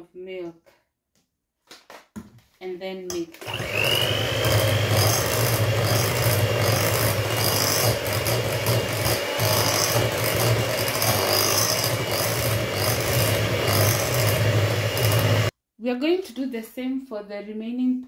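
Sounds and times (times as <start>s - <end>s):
electric hand mixer running: 3.3s - 15.5s.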